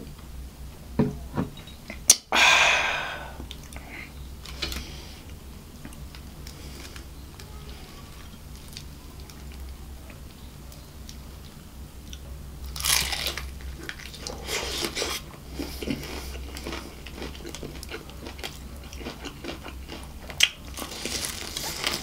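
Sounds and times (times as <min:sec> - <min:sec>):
breathy exhale: 0:02.3 - 0:04.1.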